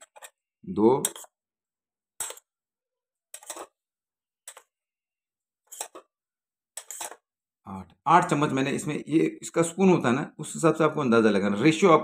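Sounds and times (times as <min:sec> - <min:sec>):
spoon scraping a metal box: 0:00.0 - 0:00.4, 0:01.0 - 0:01.4, 0:02.2 - 0:02.5, 0:03.3 - 0:03.8, 0:04.4 - 0:04.7, 0:05.7 - 0:06.1, 0:06.8 - 0:07.2.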